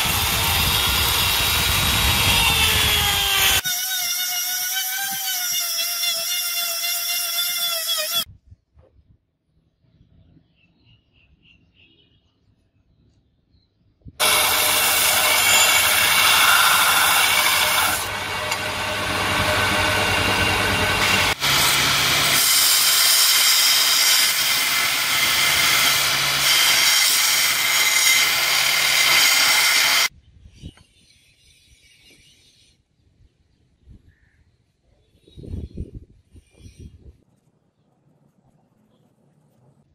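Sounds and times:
belt grinder grinding blade: 0:00.0 - 0:08.3, 0:14.2 - 0:30.1.

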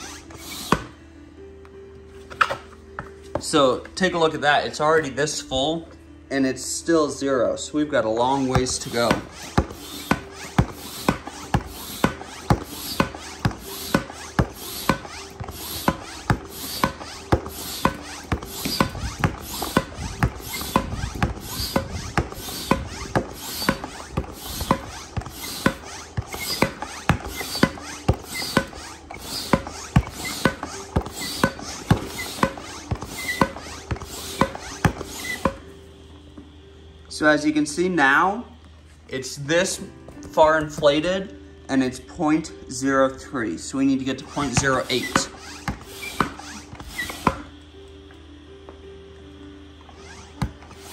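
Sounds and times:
rush of air from pump: 0:00.0 - 0:00.9, 0:08.3 - 0:35.6, 0:44.3 - 0:47.5
hand pump clicking: 0:08.4 - 0:35.6, 0:44.3 - 0:47.5.

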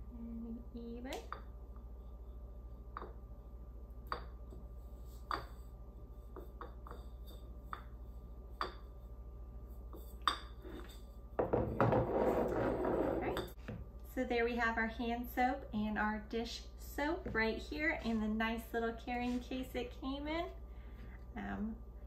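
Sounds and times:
rubbing and scraping of bottles: 0:10.0 - 0:13.6.

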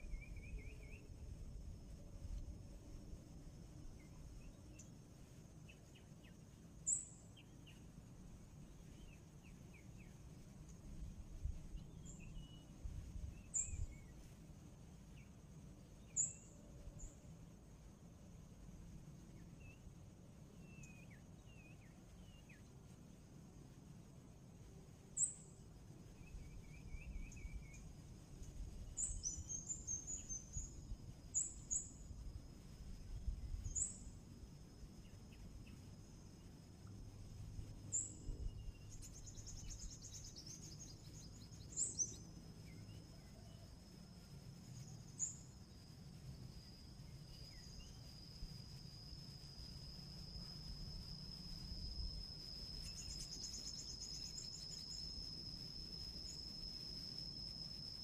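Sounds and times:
high-pitched insect drone: 0:24.9 - 0:58.0.

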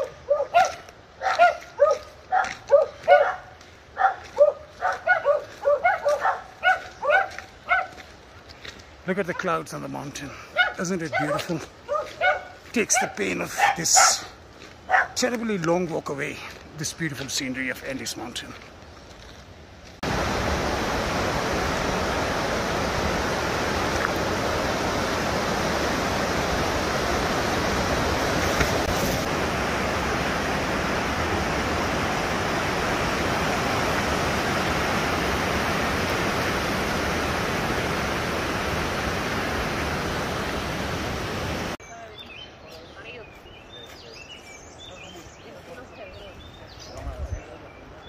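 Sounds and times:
running water rushing: 0:00.0 - 0:41.8.

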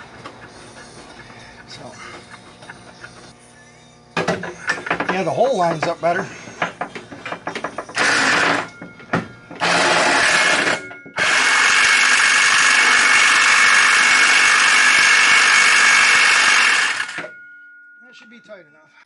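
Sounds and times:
cordless power tool driving bolt: 0:07.4 - 0:08.7.

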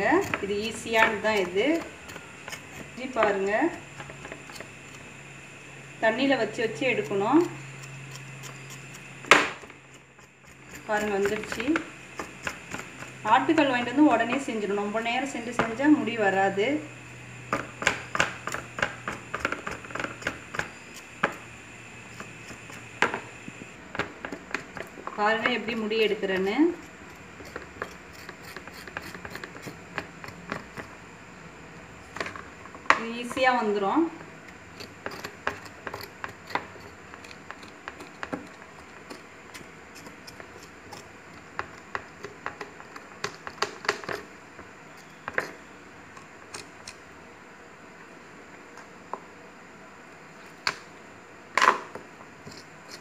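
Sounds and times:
small clicks and scrapes: 0:00.0 - 0:05.1, 0:22.1 - 0:31.0, 0:34.5 - 0:44.3, 0:52.4 - 0:53.0.

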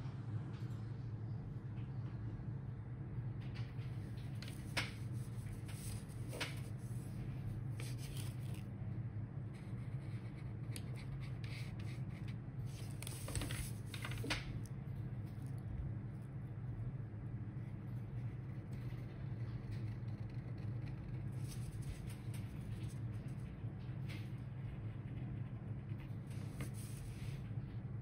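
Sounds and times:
low hum: 0:00.0 - 0:28.0
highlighter scratching on paper: 0:04.5 - 0:07.2, 0:07.8 - 0:08.6, 0:09.6 - 0:14.2.

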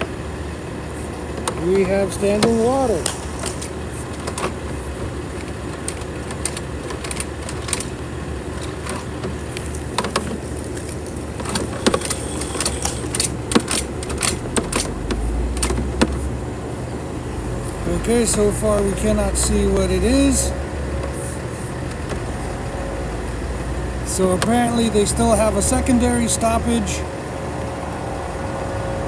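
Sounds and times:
low mechanical hum: 0:00.0 - 0:29.0
push cable clicks and knocks: 0:05.4 - 0:08.0, 0:08.6 - 0:16.3.

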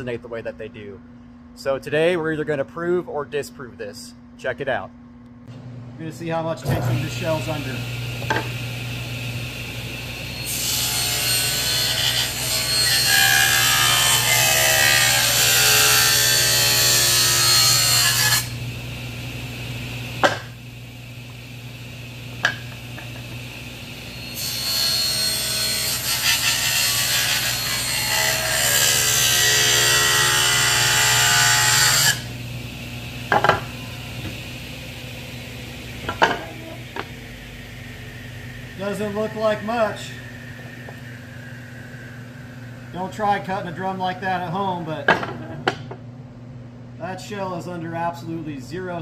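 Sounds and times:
steady low hum: 0:00.0 - 0:11.6, 0:16.0 - 0:24.4, 0:27.6 - 0:49.0
table saw cutting wood: 0:06.6 - 0:18.8, 0:19.6 - 0:20.6, 0:22.4 - 0:32.4, 0:35.3 - 0:45.8.

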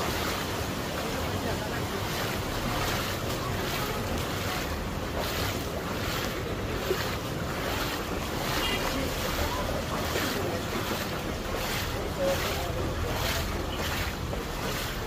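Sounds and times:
footsteps splashing through water: 0:00.0 - 0:15.0.

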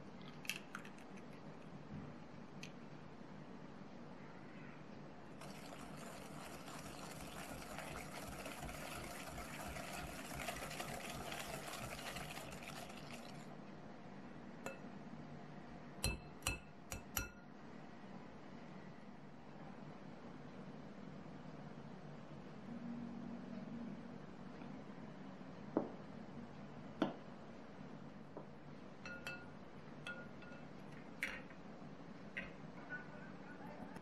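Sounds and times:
whisk beating in glass bowl: 0:05.4 - 0:13.4
metal whisk clinking on glass: 0:16.0 - 0:17.3, 0:29.0 - 0:30.7.

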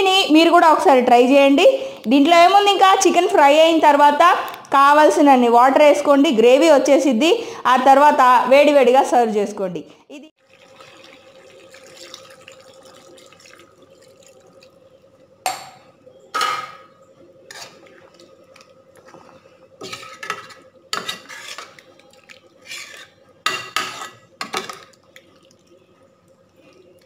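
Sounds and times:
metal spoon scraping a pan: 0:17.5 - 0:17.8, 0:19.8 - 0:21.9, 0:22.6 - 0:24.3.

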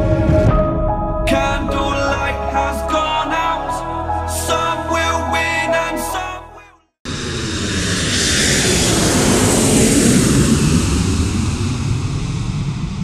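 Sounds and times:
jet engines roaring: 0:07.1 - 0:13.0.

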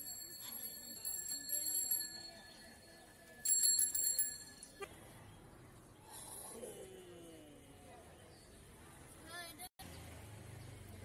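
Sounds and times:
small metal bell trilling: 0:00.0 - 0:04.9.

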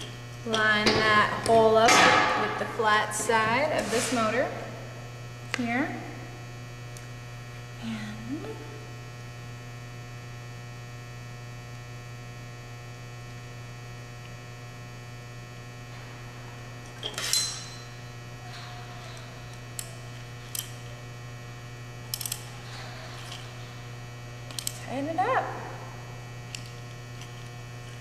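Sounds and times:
electrical mains hum: 0:00.0 - 0:28.0
screwdriver clattering on metal bench: 0:17.0 - 0:20.8
small clicks: 0:22.1 - 0:22.5.

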